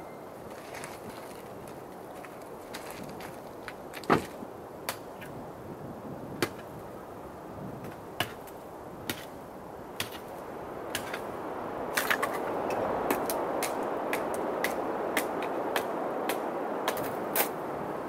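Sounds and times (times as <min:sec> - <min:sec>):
hatchet splitting wood: 0:13.1 - 0:17.5.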